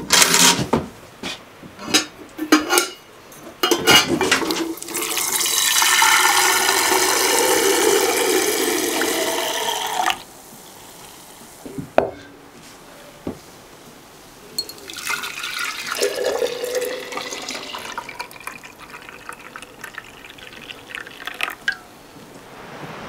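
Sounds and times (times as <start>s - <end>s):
water running into a container: 4.4s - 10.3s, 14.8s - 21.9s.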